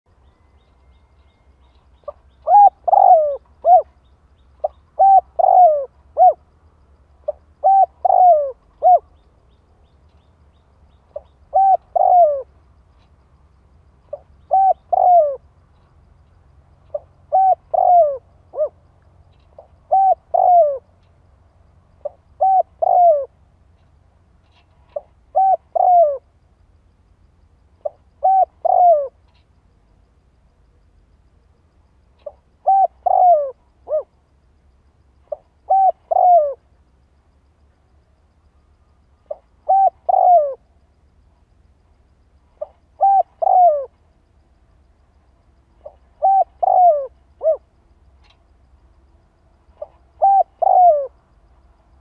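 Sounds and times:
dove cooing: 2.0 - 4.0, 4.6 - 6.4, 7.2 - 9.2, 11.1 - 12.6, 14.1 - 15.4, 16.9 - 18.8, 19.6 - 20.9, 22.0 - 23.4, 24.5 - 26.3, 27.8 - 29.2, 32.2 - 34.1, 35.3 - 36.7, 39.3 - 40.6, 42.6 - 44.0, 45.8 - 47.7, 49.8 - 51.2.

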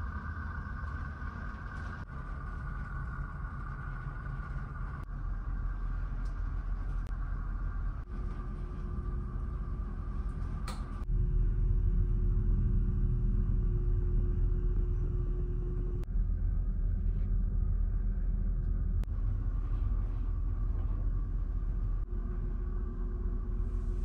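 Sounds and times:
ship engine low rumble and hum: 0.0 - 24.0.

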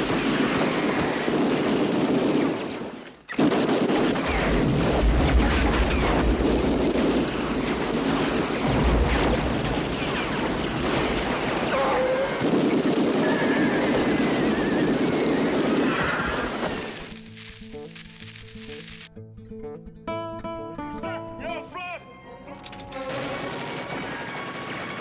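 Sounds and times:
explosion booms: 3.6 - 11.7.

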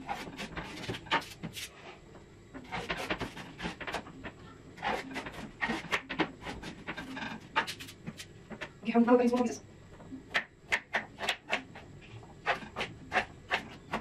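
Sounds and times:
knife cutting on a chopping board: 4.8 - 8.2, 12.4 - 14.0.

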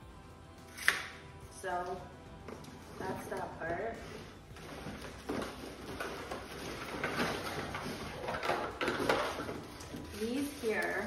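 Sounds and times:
cardboard box rustling and scraping: 4.0 - 10.4.

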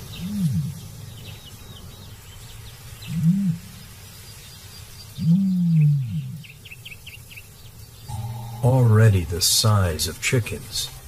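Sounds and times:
ostrich booming calls: 8.1 - 9.5.

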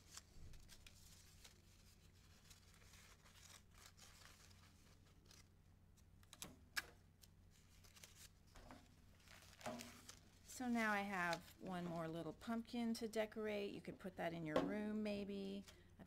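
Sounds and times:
paper rustling: 0.0 - 6.5, 7.2 - 12.3.

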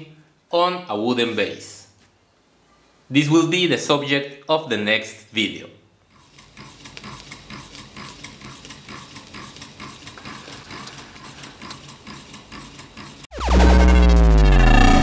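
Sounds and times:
small engine mechanical ticking: 6.2 - 13.3.

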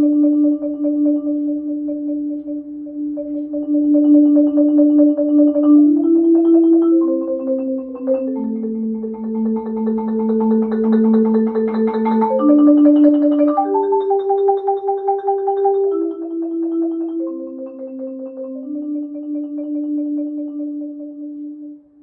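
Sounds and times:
marimba rolled chords: 0.0 - 21.9.

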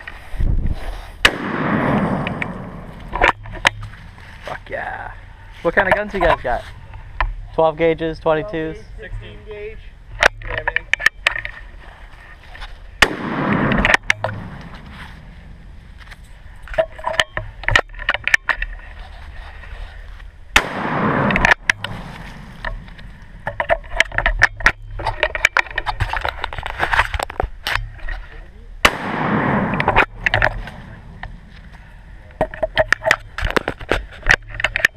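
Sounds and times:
shotgun blasts: 1.2 - 3.3, 13.0 - 14.8, 20.5 - 22.9, 28.8 - 31.5
gun handling clicks and knocks: 1.3 - 4.3, 10.1 - 11.7, 13.0 - 15.0, 16.0 - 18.9, 21.2 - 28.2, 29.6 - 34.9.

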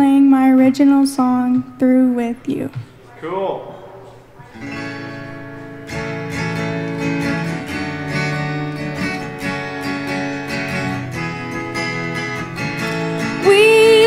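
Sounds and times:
acoustic guitar strumming: 0.0 - 3.2, 4.4 - 14.0.

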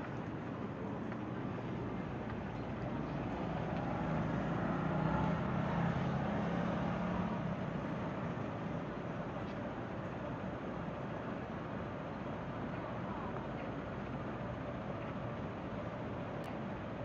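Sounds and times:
city street traffic: 0.0 - 17.0
vehicle engine hum: 0.0 - 17.0.

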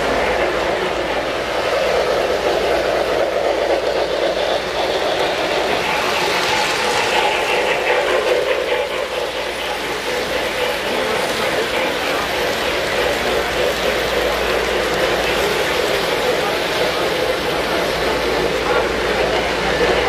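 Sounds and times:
model train whirring rumble: 0.0 - 20.0.

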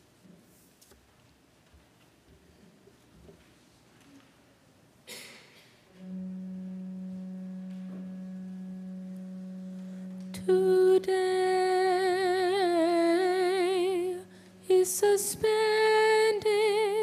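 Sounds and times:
soft hiss: 0.0 - 17.0
low organ drone: 5.9 - 17.0
person singing a sustained chant: 6.0 - 17.0.

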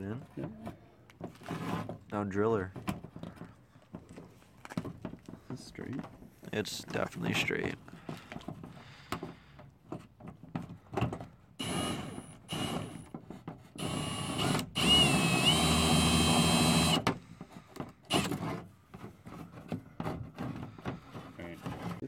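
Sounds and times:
power drill whining: 11.6 - 13.1, 13.8 - 17.1, 18.1 - 18.4.

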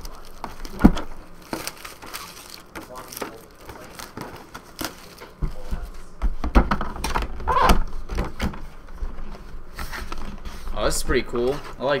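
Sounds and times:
plastic shrink-wrap crinkling: 0.0 - 5.7.

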